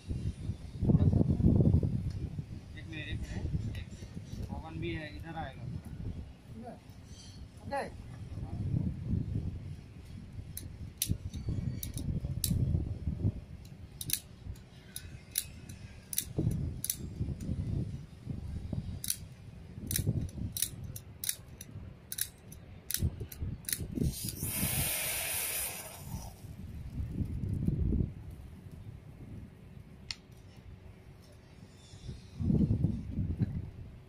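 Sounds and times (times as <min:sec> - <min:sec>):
spark igniter clicks: 0:10.5 - 0:12.6, 0:13.6 - 0:15.5, 0:19.8 - 0:26.5
welding charge igniting with hissing rush: 0:23.8 - 0:28.8.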